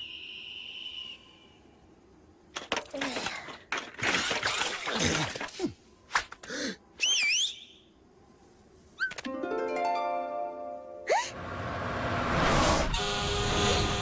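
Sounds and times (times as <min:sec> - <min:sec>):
warbling whistle: 0:00.0 - 0:01.6
clattering noise bursts: 0:02.5 - 0:06.4.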